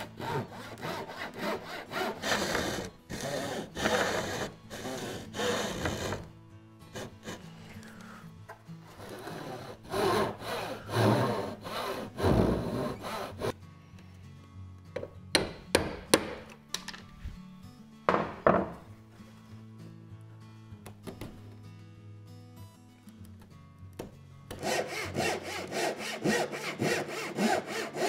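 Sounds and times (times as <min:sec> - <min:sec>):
chisel scraping wood: 0:00.0 - 0:06.3
hand saw cutting wood: 0:00.0 - 0:06.3, 0:06.9 - 0:07.9, 0:08.8 - 0:13.6, 0:24.5 - 0:28.0
chisel knocking: 0:15.0 - 0:17.0, 0:18.1 - 0:18.8.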